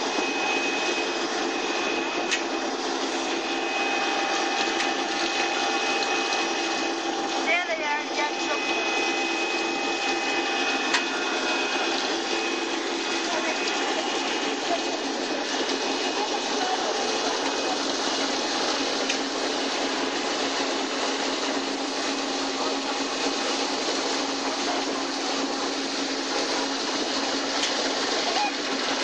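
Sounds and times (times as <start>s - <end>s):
whir of motors: 0.0s - 20.9s
churning spraying water: 0.0s - 29.0s
constant low hum: 0.0s - 29.0s.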